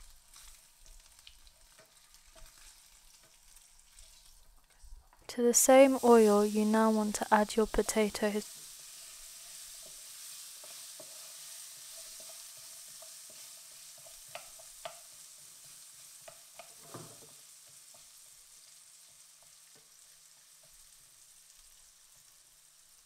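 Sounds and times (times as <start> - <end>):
potatoes sizzling in oil: 0.0 - 23.0
wooden spoon knocking pan: 14.0 - 15.1.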